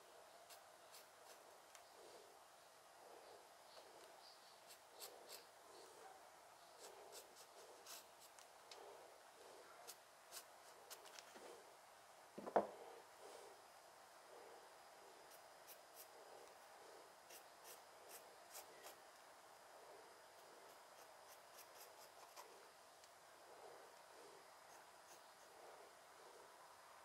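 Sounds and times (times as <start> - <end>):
knock: 12.4 - 12.7
drawing tool scratching stone: 20.9 - 22.5.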